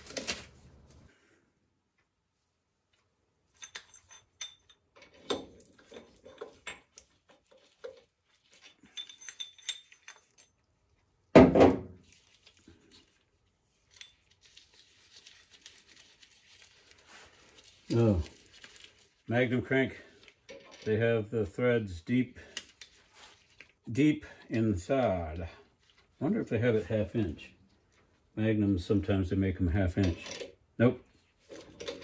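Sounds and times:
metal pieces clinking: 0:03.6 - 0:10.7.

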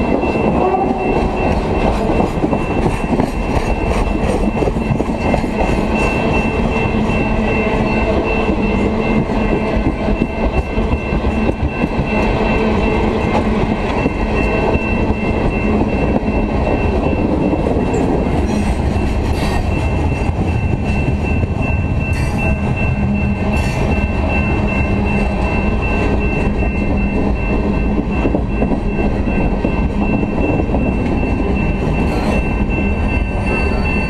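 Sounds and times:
train wheels rumbling on rails: 0:00.0 - 0:34.0
thin high ringing tone: 0:19.6 - 0:34.0.

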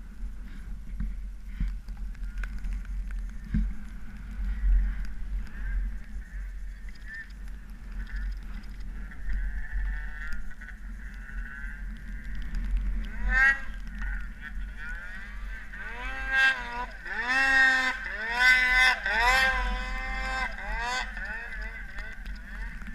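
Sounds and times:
snowmobile engine revving: 0:13.1 - 0:22.8.

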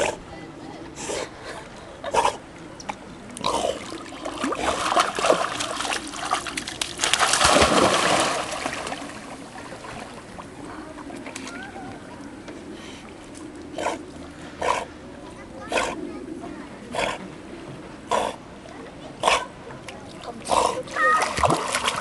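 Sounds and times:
water lapping: 0:00.0 - 0:22.0
dog splashing through water: 0:03.5 - 0:10.1, 0:20.8 - 0:22.0.

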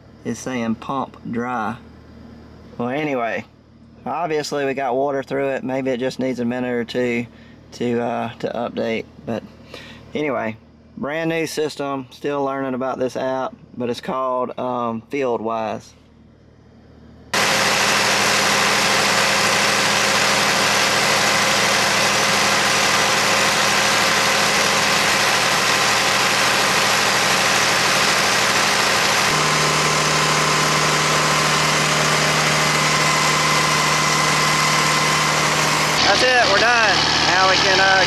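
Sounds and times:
deep strong hum: 0:16.6 - 0:38.0
engine running steadily: 0:17.2 - 0:38.0.

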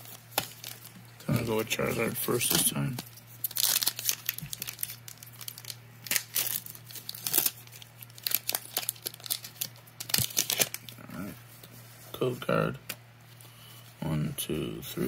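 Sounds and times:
foil wrapper crinkling and tearing: 0:01.9 - 0:11.0.

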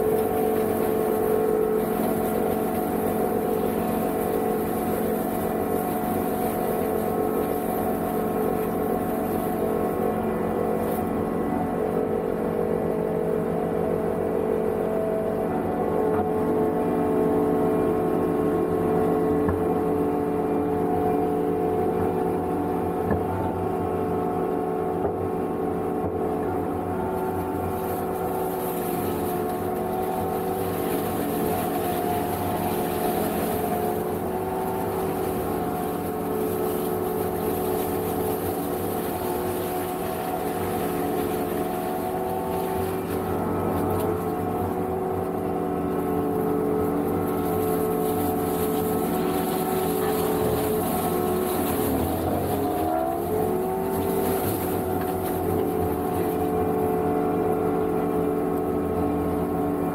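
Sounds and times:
mower engine running: 0:00.0 - 0:13.0, 0:26.4 - 0:59.9.

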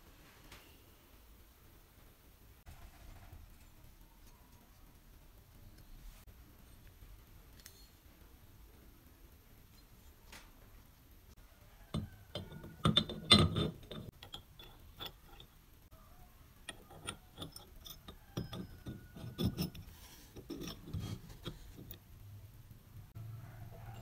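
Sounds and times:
steel parts clinking: 0:11.9 - 0:15.7, 0:16.6 - 0:22.0.

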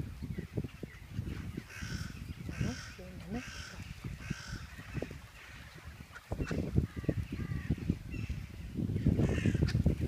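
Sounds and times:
crow cawing: 0:01.7 - 0:04.7.

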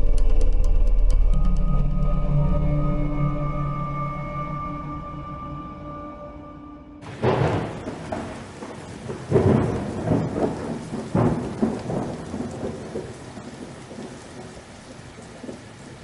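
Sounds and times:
steady rain: 0:07.0 - 0:16.0
thunder rolling: 0:07.0 - 0:16.0.

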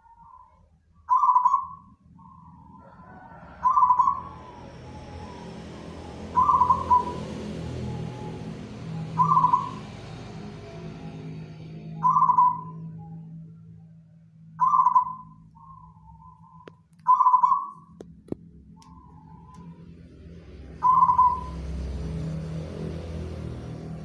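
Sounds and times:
dove cooing: 0:01.1 - 0:10.2.

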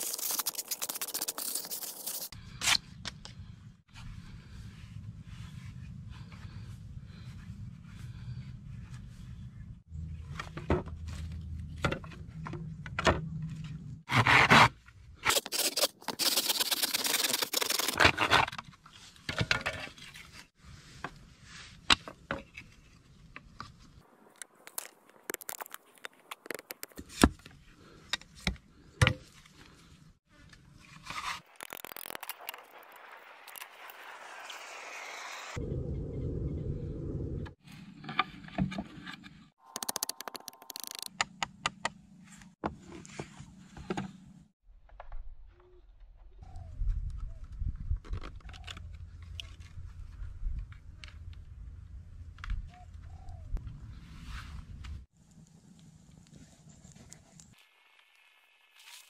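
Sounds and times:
wood and bamboo knocks and scrapes: 0:10.3 - 0:14.6, 0:17.0 - 0:23.8, 0:37.6 - 0:40.0
hand saw cutting bamboo: 0:14.1 - 0:14.7, 0:15.3 - 0:18.2.

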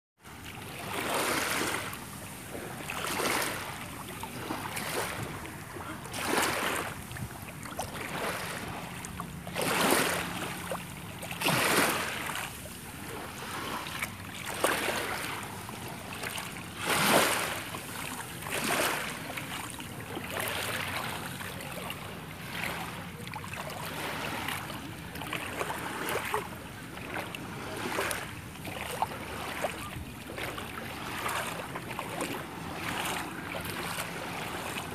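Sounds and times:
small waves washing on shore: 0:00.2 - 0:34.9.

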